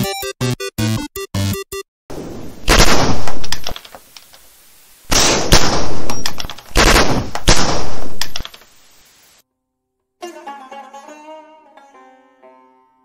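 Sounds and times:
bursts of rapid sharp bangs: 0:02.1 - 0:03.9, 0:05.1 - 0:08.4.

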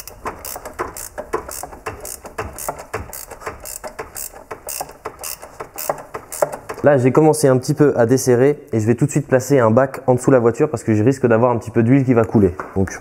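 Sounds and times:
ratchet wrench clicking: 0:00.0 - 0:06.8.

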